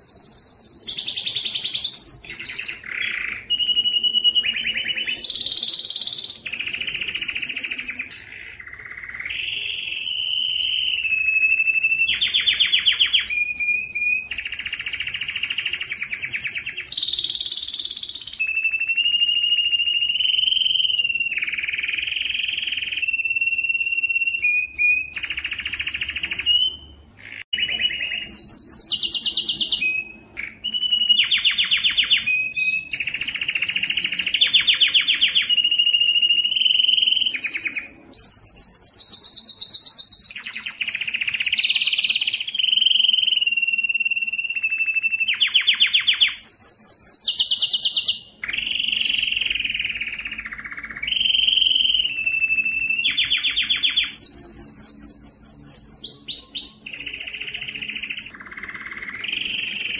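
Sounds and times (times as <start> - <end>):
canary singing: 0.0 - 59.9.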